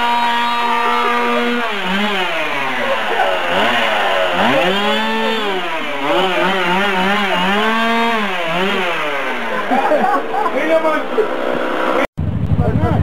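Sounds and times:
chainsaw engine revving: 0.0 - 12.1.

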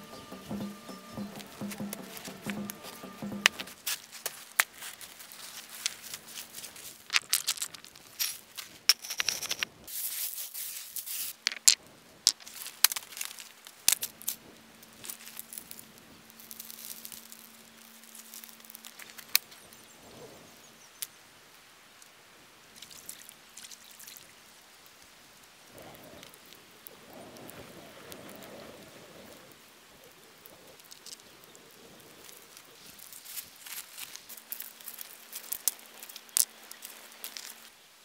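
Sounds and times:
campfire crackling: 0.0 - 8.8, 11.4 - 20.3, 24.4 - 38.0
stones clacking together: 6.9 - 9.8, 11.4 - 13.3, 34.0 - 37.6.

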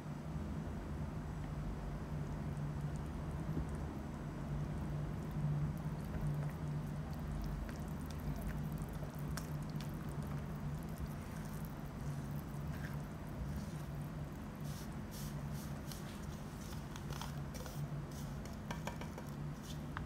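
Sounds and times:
steady low hum: 0.0 - 20.0
spatula squishing batter: 4.8 - 20.0.

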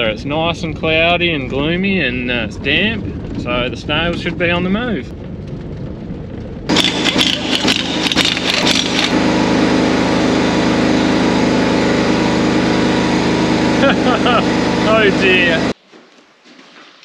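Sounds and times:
engine idling: 0.0 - 15.8
vehicle cabin rumble: 0.0 - 15.8.

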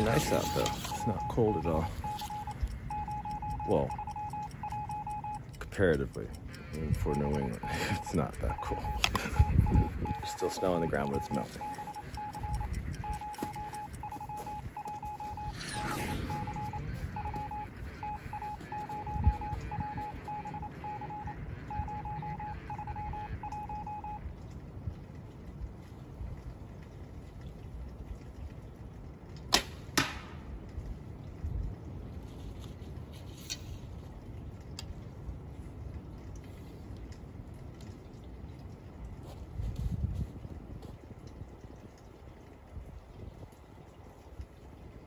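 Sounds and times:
electronic beeping: 0.0 - 5.6, 6.7 - 24.2
sharp clicks: 0.0 - 23.9.

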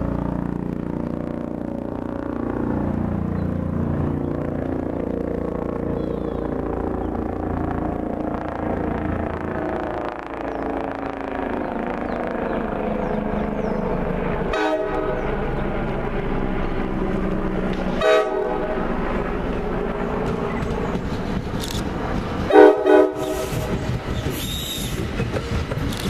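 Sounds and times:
train rumble: 0.0 - 26.0
train horn: 14.5 - 15.3, 17.9 - 18.8, 22.5 - 23.7.

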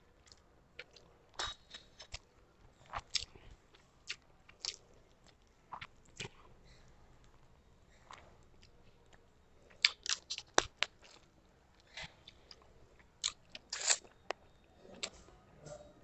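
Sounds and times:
crunching on fish bones: 9.8 - 11.2.

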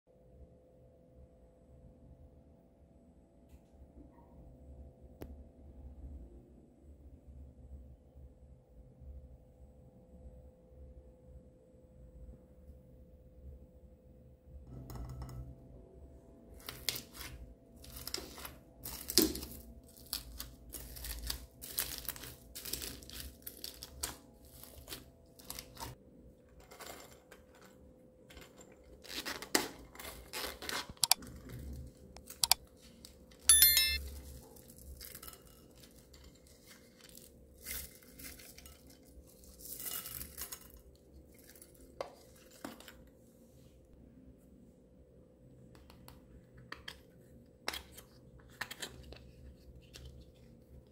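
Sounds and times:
brief ring: 33.5 - 34.0.

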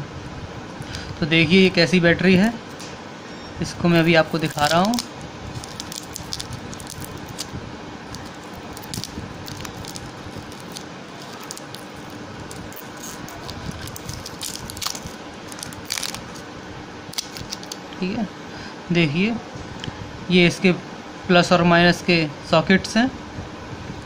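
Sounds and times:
plastic wrapper crinkling: 3.8 - 16.5, 17.1 - 17.8.

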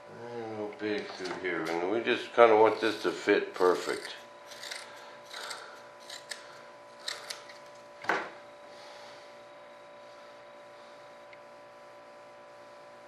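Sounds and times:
faint steady hum: 0.0 - 13.0
shears snipping cloth: 2.6 - 7.8.

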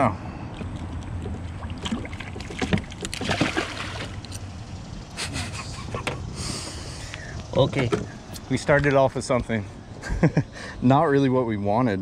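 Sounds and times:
low steady hum: 0.0 - 12.0
knocks and rustles on boat: 0.6 - 4.1, 7.6 - 8.2
fish splashing: 0.6 - 4.3.

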